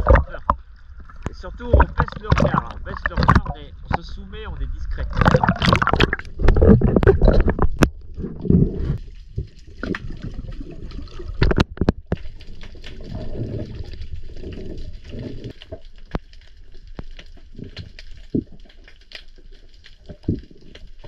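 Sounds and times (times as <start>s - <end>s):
sharp underwater clicks: 0.0s - 4.1s, 5.0s - 8.3s
water splashing and gurgling: 0.0s - 21.0s.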